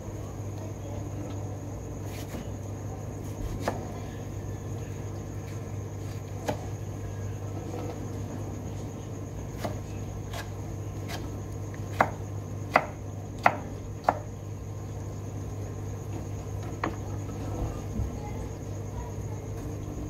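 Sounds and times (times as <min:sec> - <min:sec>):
knife chopping on cutting board: 0:11.9 - 0:14.2.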